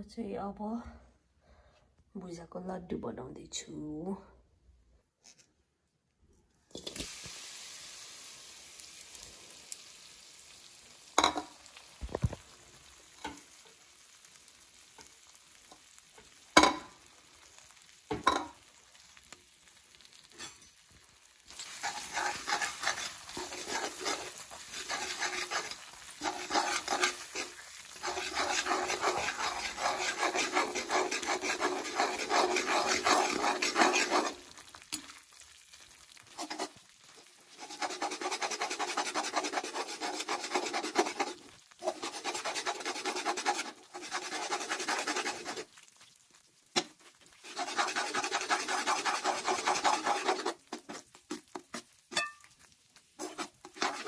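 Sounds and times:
sizzle: 0:06.7 - 0:54.0
metal spatula scraping a wok: 0:20.1 - 0:20.8, 0:21.5 - 0:35.1, 0:36.2 - 0:36.9, 0:37.5 - 0:45.7, 0:46.8 - 0:52.5, 0:53.2 - 0:54.0.

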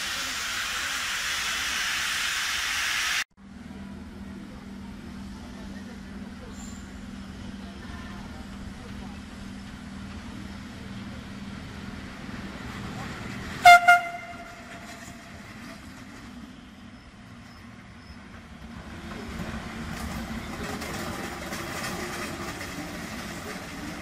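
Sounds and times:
train rumbling past: 0:00.0 - 0:24.0
locomotive horn toots: 0:13.6 - 0:15.4.

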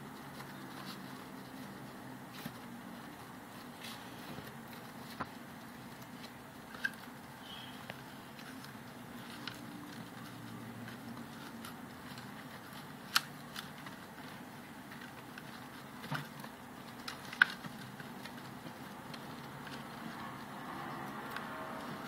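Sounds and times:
hamsters gnawing carrot: 0:00.0 - 0:22.0.

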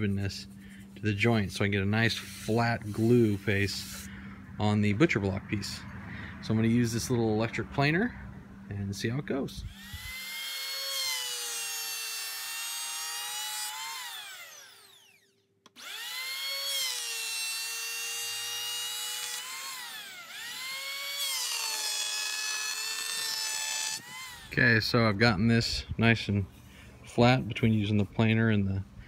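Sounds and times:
electric hand planer whining: 0:09.7 - 0:24.6.

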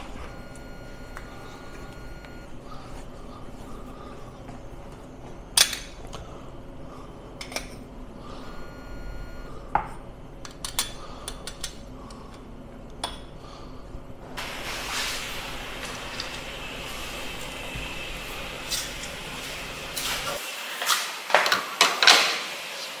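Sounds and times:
espresso machine hiss: 0:14.4 - 0:21.2.

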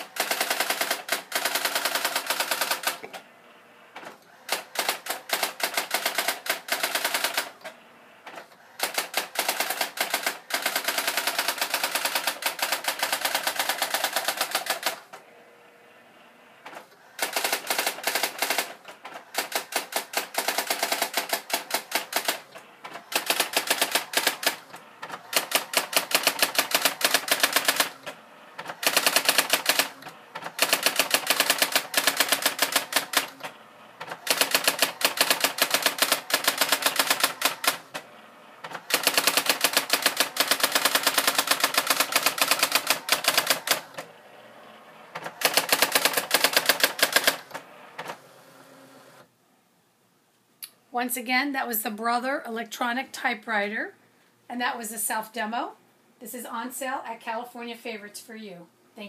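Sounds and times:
typewriter printwheel strikes: 0:17.2 - 0:33.4, 0:34.0 - 0:37.8, 0:38.6 - 0:44.0, 0:45.2 - 0:48.2.

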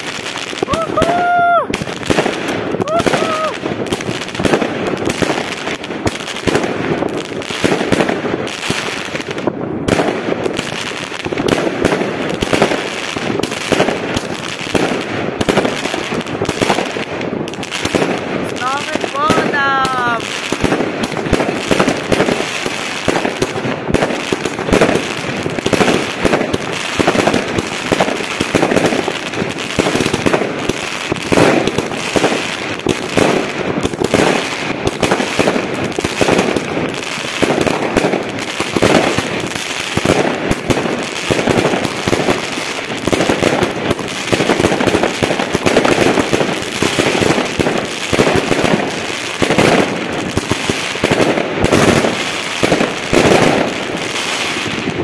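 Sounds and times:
fireworks bangs: 0:00.0 - 0:55.0.

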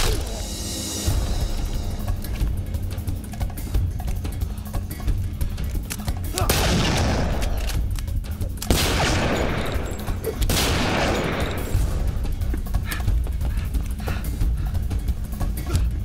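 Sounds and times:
background music with steady beat: 0:00.1 - 0:16.0
rapid gunfire: 0:06.4 - 0:07.6.

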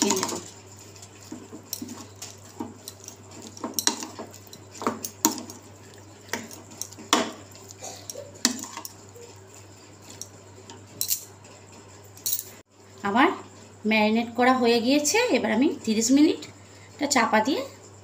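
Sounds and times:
metal spoon scraping a bowl: 0:00.0 - 0:09.1.

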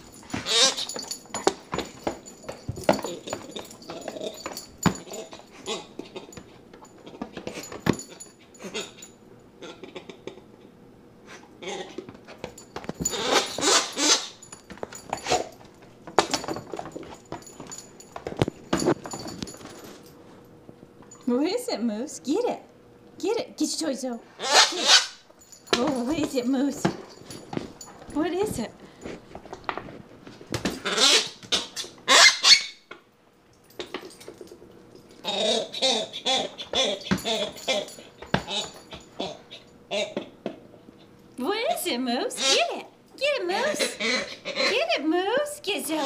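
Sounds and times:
squeaky dog toy squeaking: 0:00.4 - 0:01.0, 0:13.1 - 0:14.4, 0:24.4 - 0:25.2, 0:30.8 - 0:32.8, 0:42.4 - 0:42.9.

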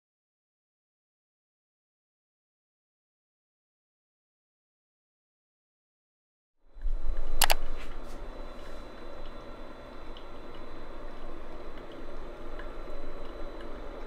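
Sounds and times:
coffee maker gurgling and dripping: 0:06.8 - 0:14.0.

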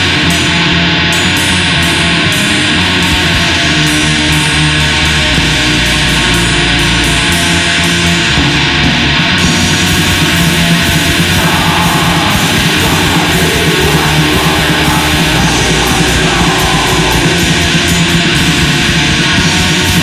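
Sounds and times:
distorted electric guitars: 0:00.0 - 0:20.0
fast drumming: 0:08.3 - 0:20.0.

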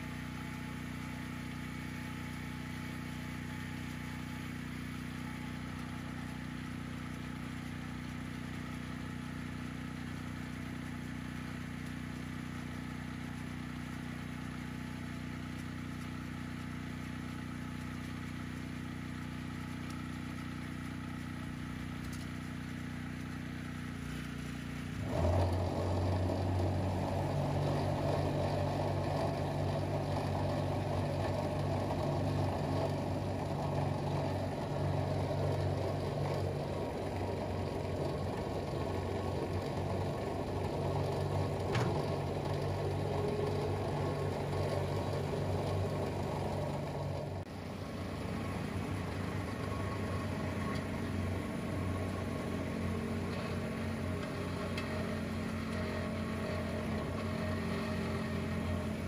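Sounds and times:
diesel loader engine: 0:00.0 - 0:59.0.

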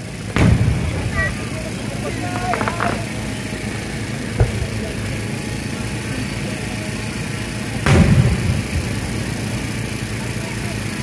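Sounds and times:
low background rumble: 0:00.0 - 0:11.0
deep firework boom: 0:00.3 - 0:03.3, 0:04.3 - 0:05.4, 0:07.8 - 0:09.5
firework bang: 0:00.3 - 0:03.3, 0:04.3 - 0:05.1, 0:07.8 - 0:09.4.

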